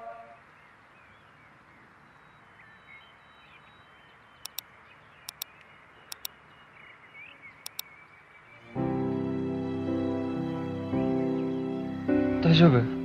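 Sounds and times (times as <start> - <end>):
birds chirping: 0.3 - 8.9
computer mouse double-clicks: 5.3 - 5.5.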